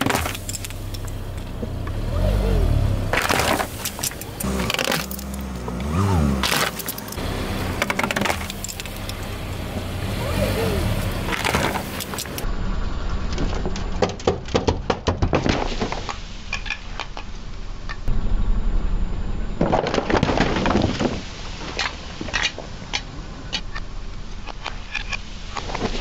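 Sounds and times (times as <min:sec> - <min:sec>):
cans crunching under a tyre: 0:00.0 - 0:01.2, 0:03.1 - 0:07.2.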